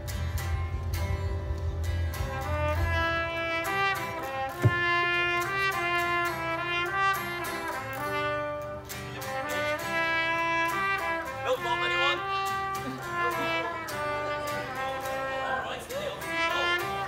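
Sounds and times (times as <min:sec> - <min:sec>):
strummed acoustic guitar: 0:00.0 - 0:17.0
trumpet melody: 0:02.1 - 0:17.0
sharp thump: 0:04.6 - 0:05.0.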